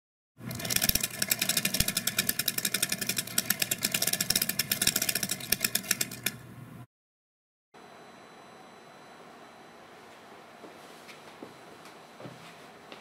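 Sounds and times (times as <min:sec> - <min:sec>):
crank mechanism clicking: 0:00.5 - 0:06.4.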